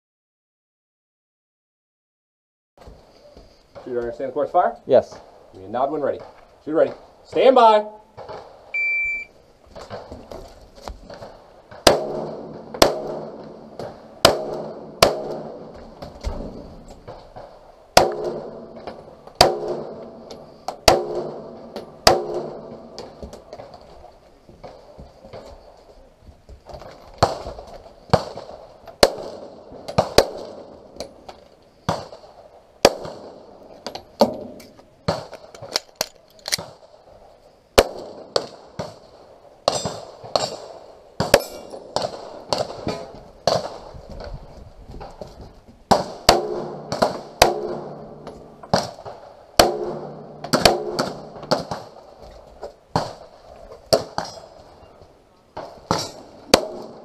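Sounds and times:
pistol shots: 11.1 - 23.8, 28.1 - 31.1, 31.9 - 33.6, 37.8 - 43.9, 45.9 - 52.2, 55.6 - 57.0.

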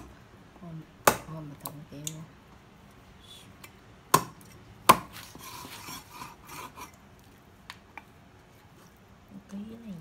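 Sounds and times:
cleaver striking chopping block: 1.0 - 1.3, 4.1 - 5.2
scraping on board: 5.1 - 7.0.

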